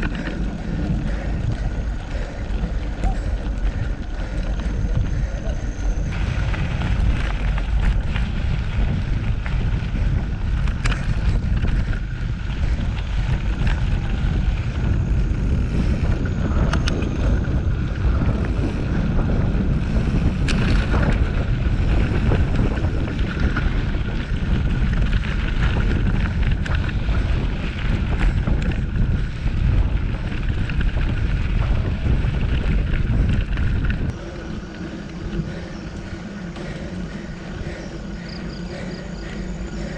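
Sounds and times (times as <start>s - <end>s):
sharp clicks and rattles: 0.0s - 17.4s
wind buffeting microphone: 0.0s - 39.9s.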